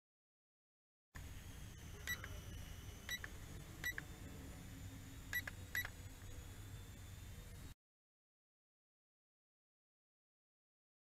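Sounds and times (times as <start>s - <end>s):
high electronic beeps: 1.7s - 4.1s.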